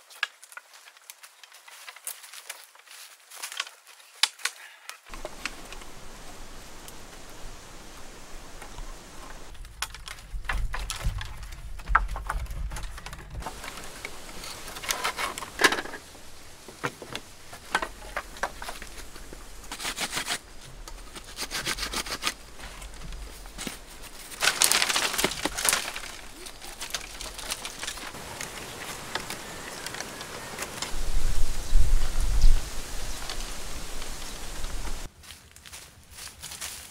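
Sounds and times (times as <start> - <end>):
bamboo poles clattering: 0.0 - 31.6
sharp clicks and crackles: 8.5 - 31.0.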